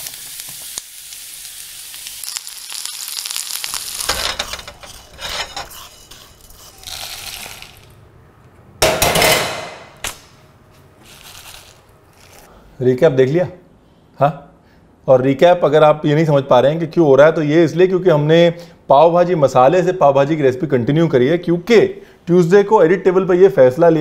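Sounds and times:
spices sizzling in a pan: 0:00.0 - 0:07.7.

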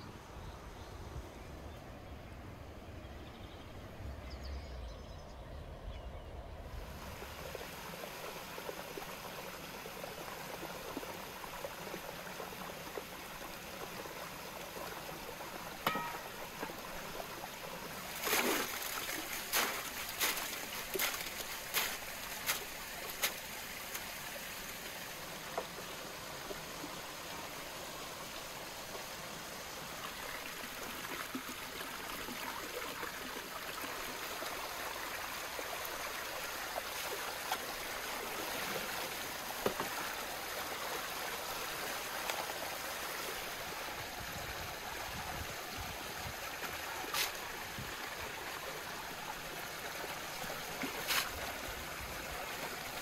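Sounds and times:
metal skimmer knocks: 0:15.8 - 0:17.0
water pouring and splashing into tub: 0:15.8 - 0:24.2, 0:50.4 - 0:53.0.

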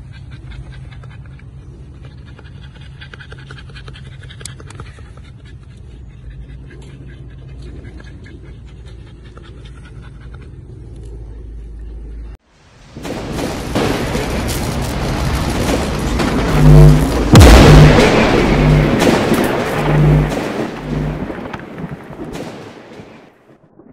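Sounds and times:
heavy boom: 0:13.0 - 0:23.3
rumble with deep pulsing bass: 0:13.9 - 0:22.4.

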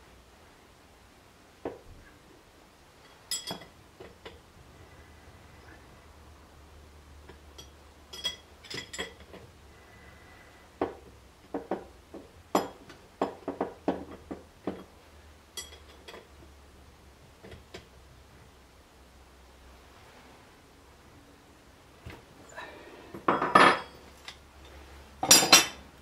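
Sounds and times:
metal tools clinking: 0:03.0 - 0:03.7, 0:07.6 - 0:09.4, 0:15.6 - 0:16.3, 0:23.3 - 0:25.8.

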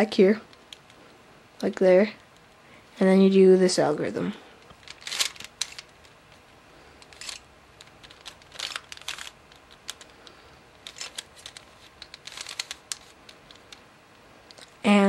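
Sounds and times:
plastic puzzle layers clicking: 0:04.7 - 0:06.2, 0:07.0 - 0:13.9.

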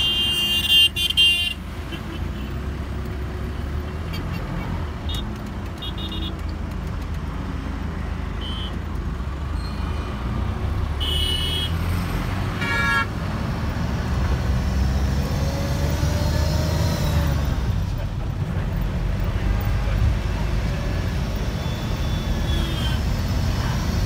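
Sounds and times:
vehicle horns tooting: 0:00.0 - 0:02.4, 0:05.1 - 0:06.4, 0:08.4 - 0:08.8, 0:11.0 - 0:11.8, 0:12.6 - 0:13.1, 0:21.6 - 0:23.0
engine and road rumble: 0:00.0 - 0:24.0.

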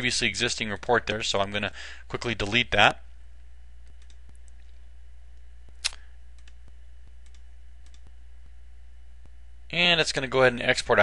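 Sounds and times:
low electrical hum: 0:00.0 - 0:11.0
computer mouse clicks: 0:03.8 - 0:04.8, 0:05.7 - 0:08.1.

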